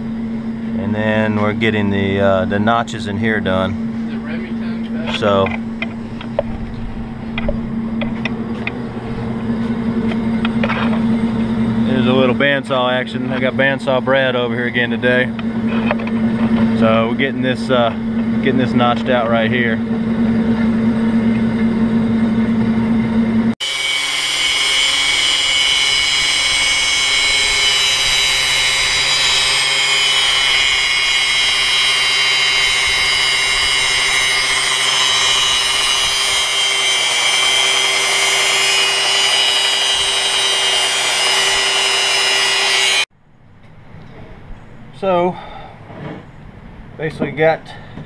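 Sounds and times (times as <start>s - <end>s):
angle grinder grinding steel: 23.6s - 43.1s
bandsaw cutting steel: 23.6s - 43.1s.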